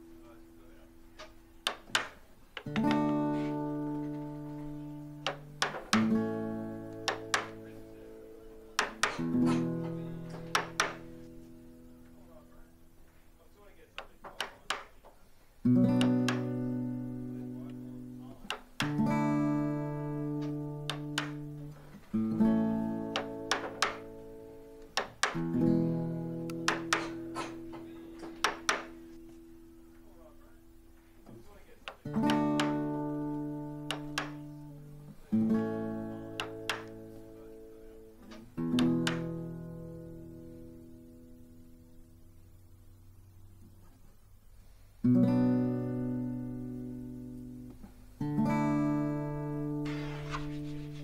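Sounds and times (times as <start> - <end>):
acoustic guitar chords: 0.0 - 51.0
chisel clicking into wood: 14.0 - 14.9, 16.0 - 16.5, 20.9 - 21.4, 23.1 - 24.1, 26.6 - 27.5, 28.4 - 28.9, 33.9 - 34.4
light sharp taps: 20.4 - 21.5, 33.8 - 34.5.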